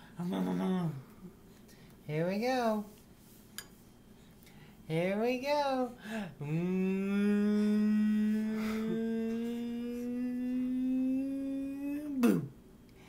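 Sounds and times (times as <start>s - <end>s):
man singing long note: 6.4s - 12.2s.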